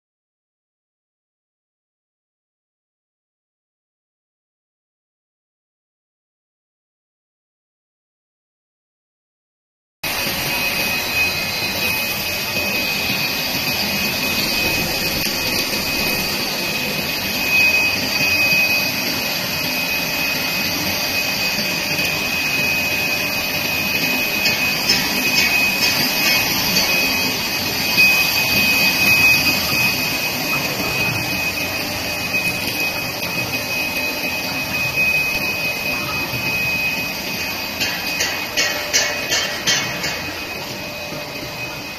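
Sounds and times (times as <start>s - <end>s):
thin high whine: 10.0s - 41.9s
machine mechanical hiss: 10.1s - 41.4s.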